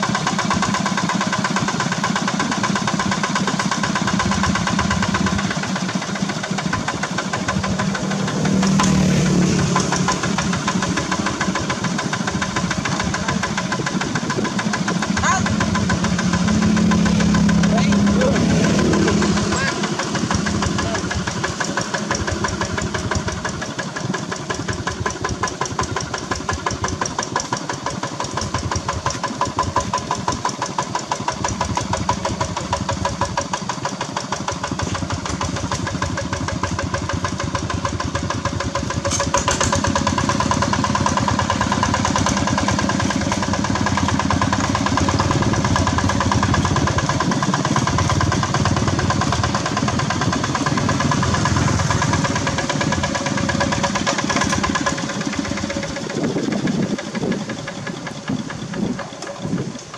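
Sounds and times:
diesel engine chugging: 0.0s - 59.9s.

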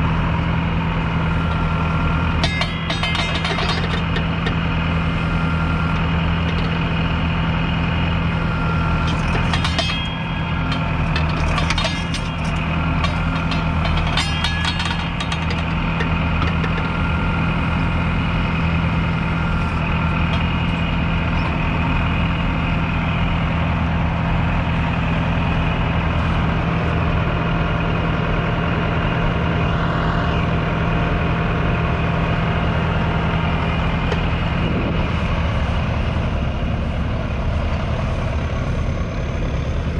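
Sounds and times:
tractor diesel engine under load: 0.0s - 39.9s
rattling: 2.2s - 5.0s, 9.0s - 17.2s.

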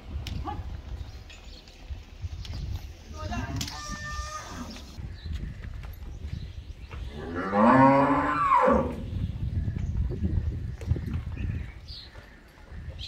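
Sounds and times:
cow mooing: 7.2s - 9.0s.

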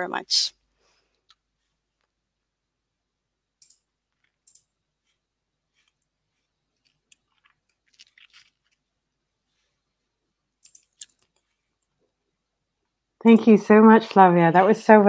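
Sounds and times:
faint small clicks and crackles: 3.6s - 8.8s, 10.6s - 12.0s.

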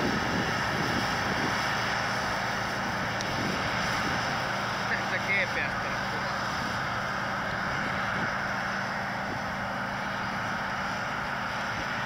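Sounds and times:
combine harvester drone: 0.0s - 12.0s.

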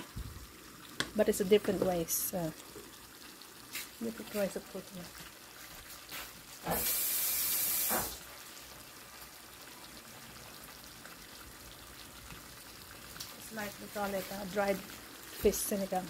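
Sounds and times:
pot simmering with faint sizzle: 0.0s - 16.0s
loud hiss: 6.7s - 8.2s.

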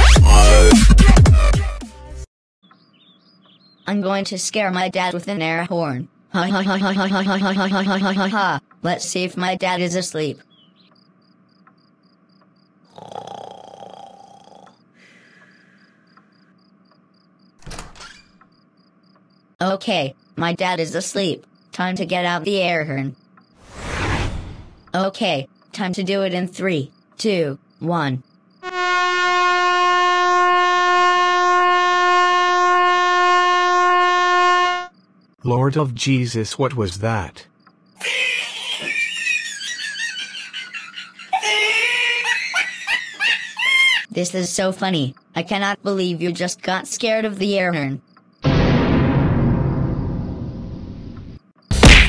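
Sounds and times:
crickets chirping: 8.4s - 23.6s, 24.7s - 35.4s, 36.1s - 48.4s
air horn blast: 28.6s - 34.9s.

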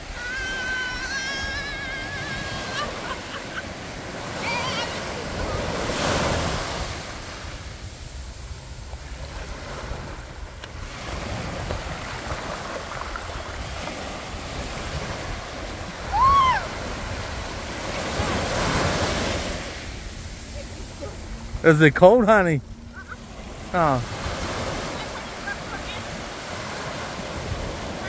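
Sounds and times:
waves breaking on sandy shore: 0.0s - 28.0s
short high cry: 16.1s - 16.7s.

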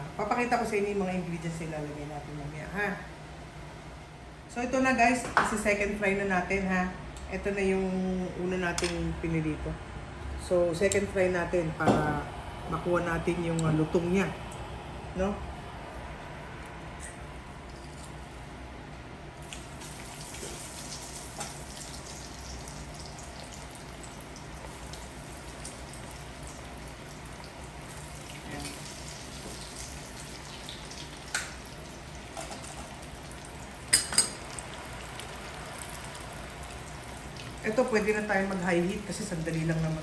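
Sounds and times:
meat sizzling in hot oil: 19.5s - 38.1s.

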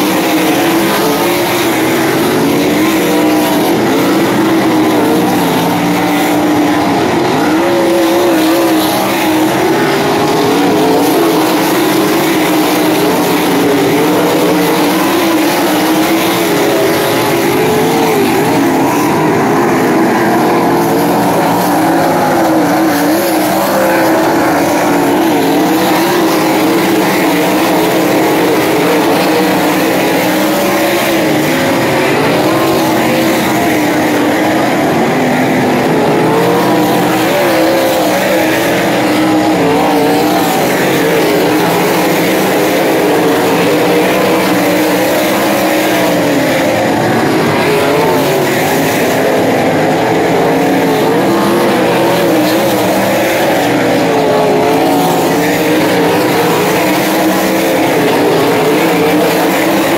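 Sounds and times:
racing car engines: 0.0s - 59.9s.

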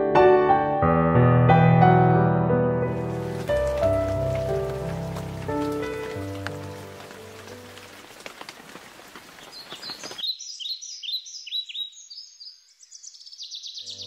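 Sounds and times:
rain dripping from roof eave: 3.0s - 10.2s
small birds chirping: 3.0s - 14.0s.

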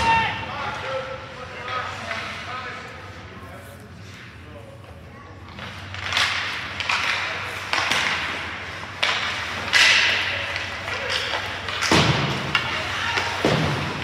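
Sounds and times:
hockey sticks and puck striking: 5.4s - 14.0s.

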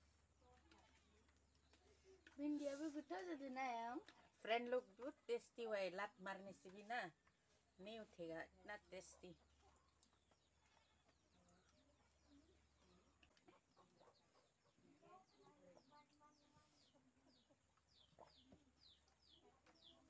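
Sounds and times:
chickens clucking: 9.2s - 20.0s
chickens chirping: 9.7s - 20.0s.

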